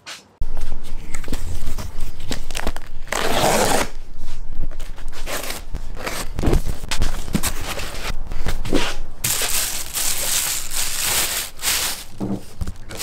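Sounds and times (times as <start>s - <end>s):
low rumble: 0.4s - 11.5s
box cutter slitting tape: 3.1s - 3.9s.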